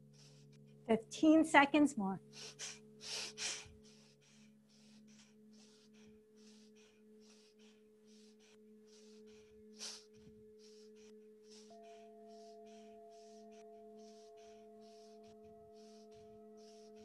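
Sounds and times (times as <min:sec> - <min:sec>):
forceful breathing through nose: 0:00.0 - 0:00.8, 0:02.3 - 0:17.0
steady low ringing tone: 0:03.6 - 0:17.0.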